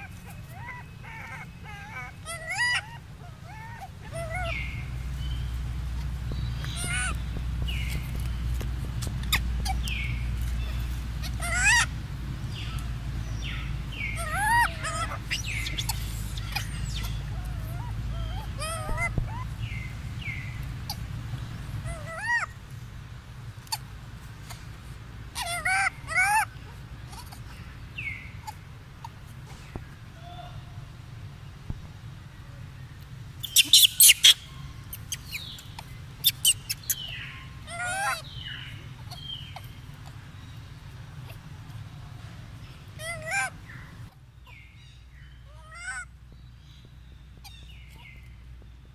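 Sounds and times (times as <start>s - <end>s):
monkey calling: 0.0s - 8.3s, 8.9s - 22.6s, 25.3s - 29.5s, 33.4s - 44.8s, 45.5s - 46.1s
animal clicking calls: 14.1s - 19.8s, 33.0s - 40.2s.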